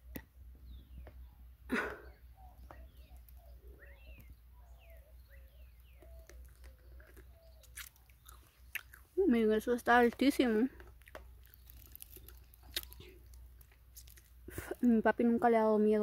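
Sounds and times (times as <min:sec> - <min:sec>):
birds chirping and calling: 0:00.6 - 0:10.6.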